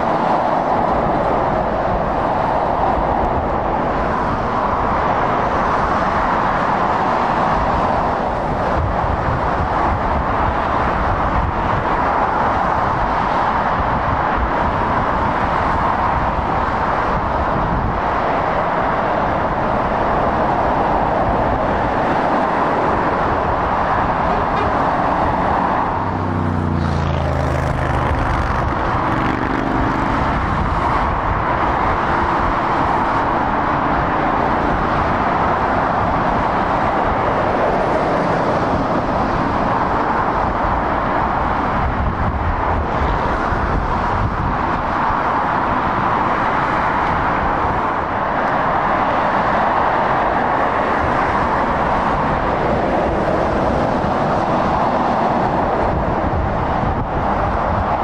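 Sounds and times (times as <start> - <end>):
motorway traffic tyre noise: 0.0 - 58.0
heavy truck engine passing: 22.7 - 36.4.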